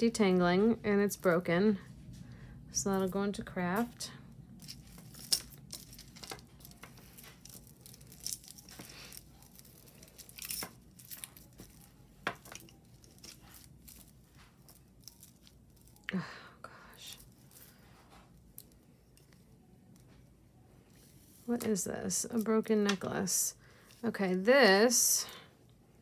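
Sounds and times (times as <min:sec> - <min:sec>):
jewelry clicking and rustling: 0:02.8 - 0:16.2, 0:16.9 - 0:20.3.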